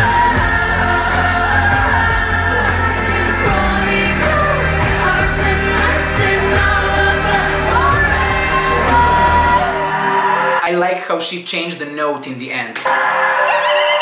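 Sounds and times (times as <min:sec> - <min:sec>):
heavy bass beat: 0:00.0 - 0:10.0
woman singing pop song: 0:00.0 - 0:10.4
backing vocals chorus: 0:00.0 - 0:10.7.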